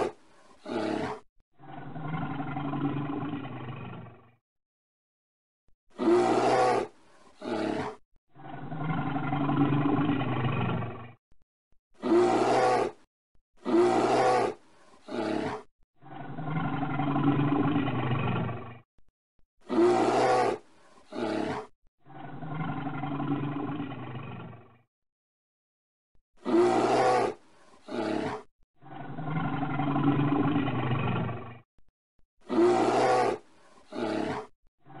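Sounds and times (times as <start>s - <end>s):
bear growling low: 0.0s - 4.2s, 13.6s - 18.6s, 19.7s - 24.7s, 26.4s - 31.4s, 32.5s - 35.0s
bear roaring: 0.0s - 4.2s, 6.0s - 10.9s, 12.0s - 17.9s, 19.7s - 21.7s, 26.4s - 28.5s, 32.5s - 35.0s.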